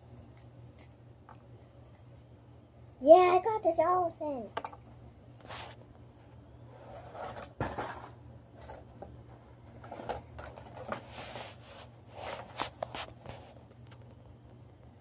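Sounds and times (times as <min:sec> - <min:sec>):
plastic packaging rustling: 0:06.8 - 0:14.0.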